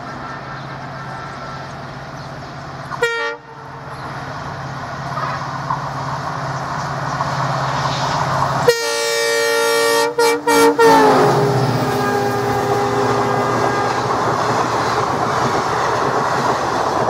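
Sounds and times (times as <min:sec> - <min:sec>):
diesel locomotive engine drone: 0:00.0 - 0:17.0
train horn blasts: 0:03.0 - 0:03.8, 0:08.6 - 0:14.4.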